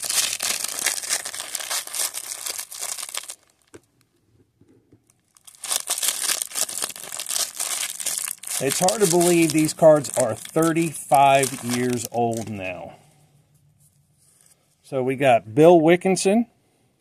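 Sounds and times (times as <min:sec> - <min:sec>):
cellophane wrapper crinkling: 0:00.0 - 0:04.0, 0:05.0 - 0:12.9.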